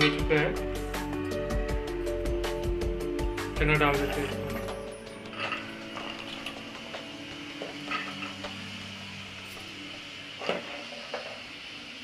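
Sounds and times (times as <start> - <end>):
chickpeas sizzling in hot oil: 4.4 - 12.0.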